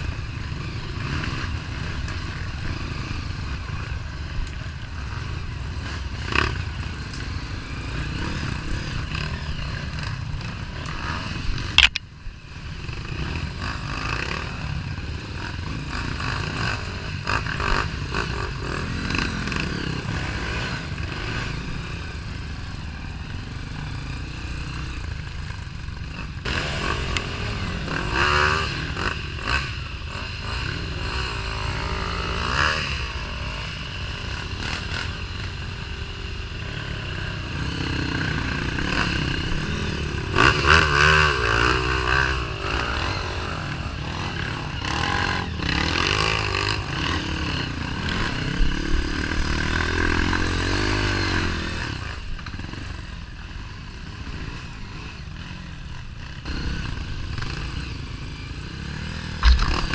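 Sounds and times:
dirt bike engine revving: 0.0 - 59.9
bike clattering and scraping: 59.4 - 59.9.

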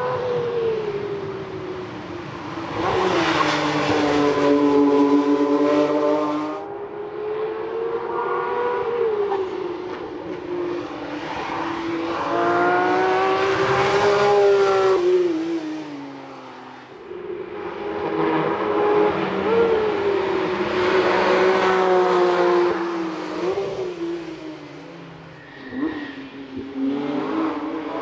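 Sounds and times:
race car engine revving: 2.4 - 16.9.

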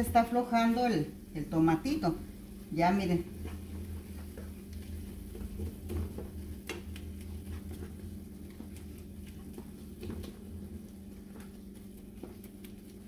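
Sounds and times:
low steady hum: 0.0 - 13.0
spatula tapping and scraping pan: 3.4 - 13.0.

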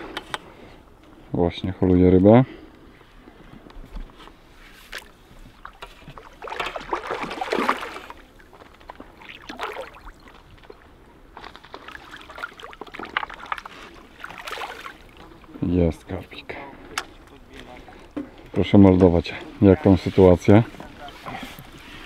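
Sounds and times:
fish splashing in water: 5.6 - 10.6, 11.6 - 15.4.

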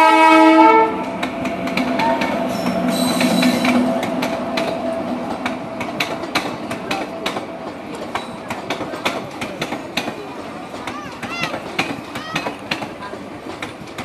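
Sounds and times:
train horn: 0.0 - 3.9
train wheels clattering over rail joints: 1.0 - 14.0.

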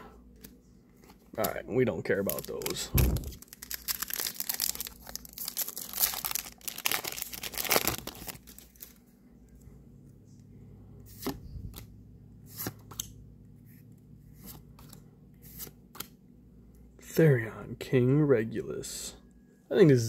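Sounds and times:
foil pack tearing and crinkling: 2.3 - 9.0.

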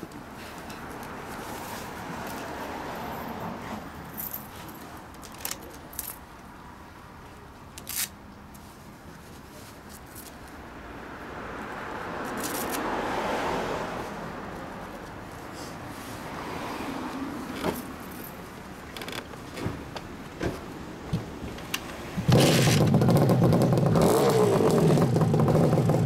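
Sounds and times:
street traffic: 0.0 - 26.0
car passing: 0.7 - 4.4, 10.6 - 19.1.

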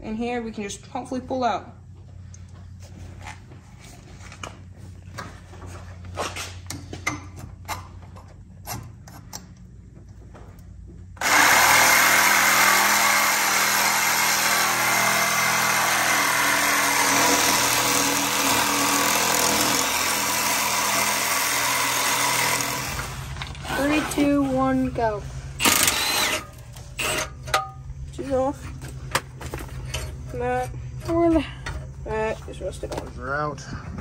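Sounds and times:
reciprocating saw cutting metal pipe: 11.2 - 24.3, 25.6 - 27.7.

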